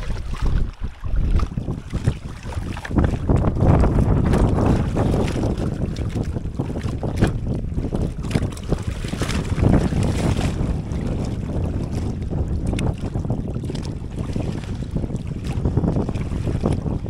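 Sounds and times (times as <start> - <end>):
seawater sloshing and splashing: 0.0 - 17.0
wind noise on microphone: 0.0 - 17.0.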